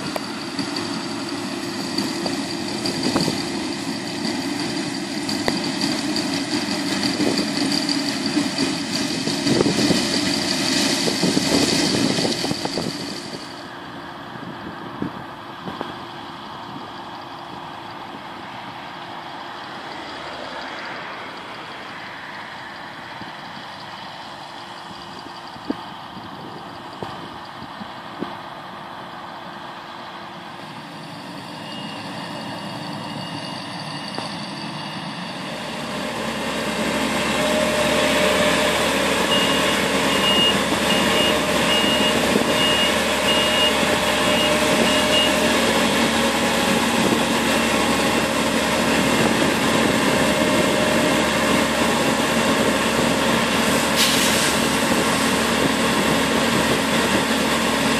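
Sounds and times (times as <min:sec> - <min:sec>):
combine harvester running: 0:00.0 - 0:57.9
short electronic beeps: 0:39.2 - 0:45.5.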